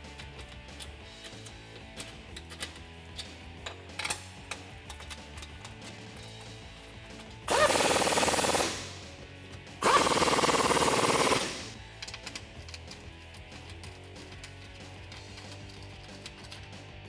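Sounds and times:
power tool rattling: 3.9s - 9.1s, 9.8s - 12.9s.

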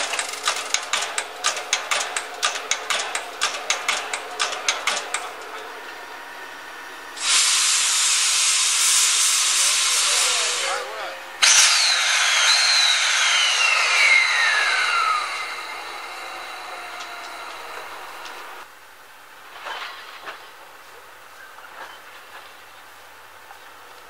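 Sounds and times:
steam locomotive mechanical beat: 0.0s - 10.8s, 12.8s - 18.7s
steam hissing: 6.4s - 18.6s.

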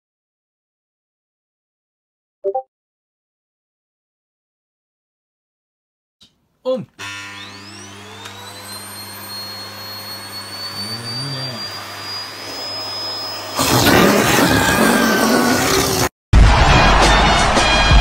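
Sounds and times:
vacuum cleaner motor whine: 7.0s - 15.3s.

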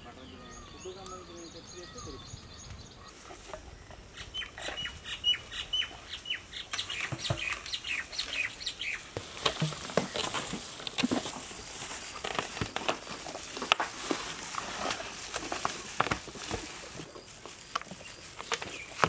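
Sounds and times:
small birds chirping: 0.0s - 13.6s, 15.4s - 19.0s.

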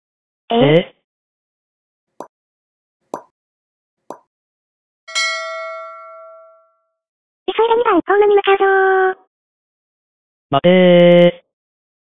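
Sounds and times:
bell-like ding: 5.1s - 6.8s.

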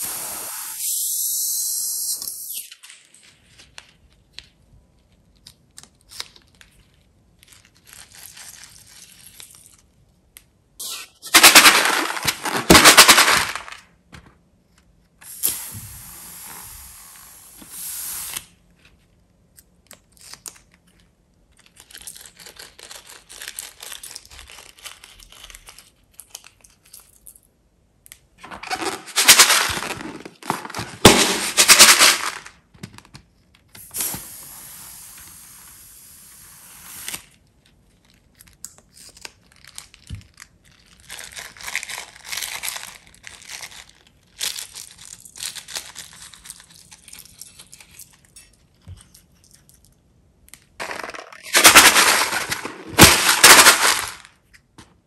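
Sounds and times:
steady air hiss: 0.0s - 2.7s, 15.2s - 18.6s, 33.8s - 37.2s.

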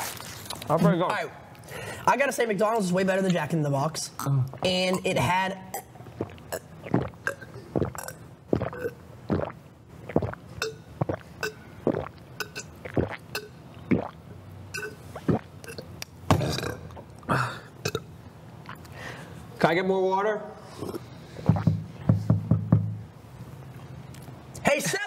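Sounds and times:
man gulping water: 4.2s - 19.0s, 20.7s - 21.9s
breathy sounds: 17.2s - 17.8s, 18.8s - 19.5s.

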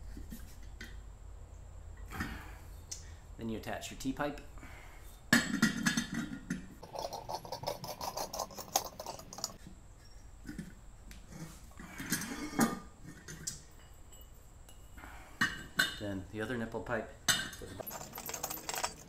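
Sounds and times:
metal clinks and knocks: 5.4s - 9.6s, 13.2s - 14.9s, 17.3s - 19.0s
pipe threads ticking scrapes: 6.8s - 9.6s.

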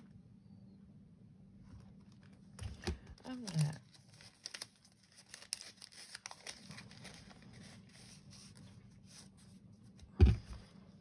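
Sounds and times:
paper rustling and clicking: 2.0s - 8.6s
sudden thump: 10.2s - 10.6s.

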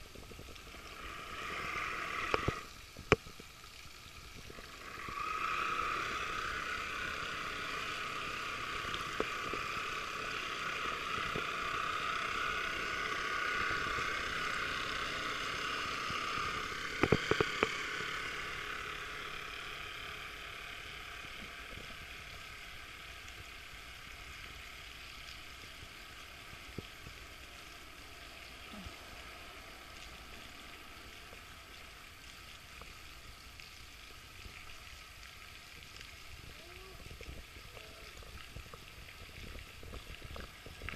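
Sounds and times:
model boat motor whining: 0.6s - 2.8s, 4.5s - 32.2s.

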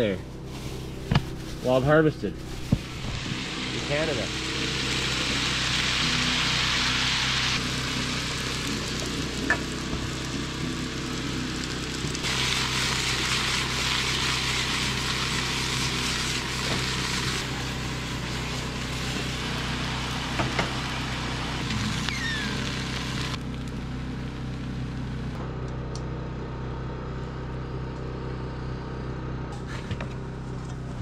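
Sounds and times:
rice sizzling in a pan: 2.7s - 23.6s.

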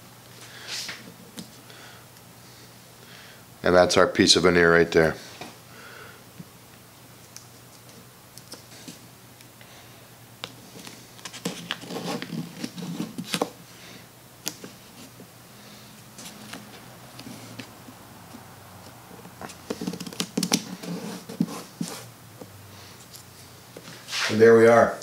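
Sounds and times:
tape crinkly rustling: 10.4s - 13.6s, 16.1s - 22.1s.

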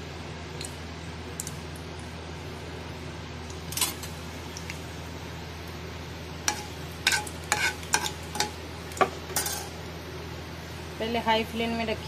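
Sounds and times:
low hum and hiss: 0.0s - 12.0s
spices frying in hot oil: 0.0s - 12.0s.

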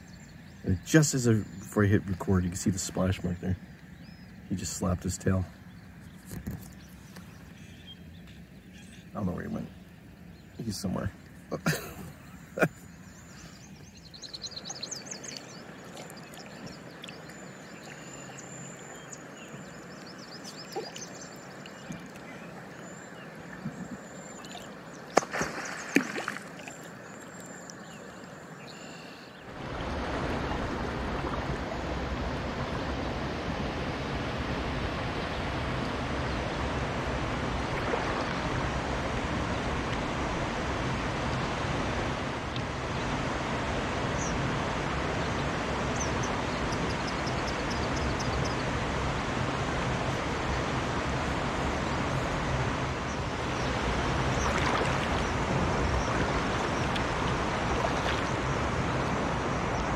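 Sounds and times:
water sloshing around a kayak: 13.0s - 33.0s, 49.3s - 59.9s.

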